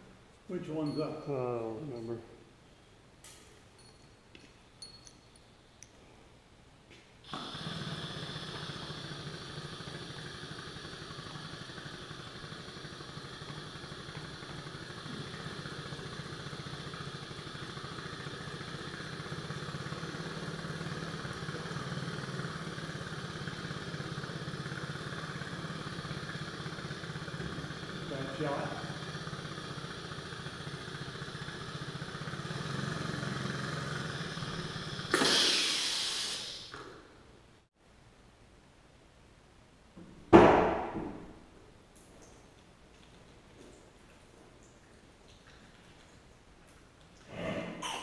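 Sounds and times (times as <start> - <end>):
excavator diesel engine running: 7.3 - 35.1.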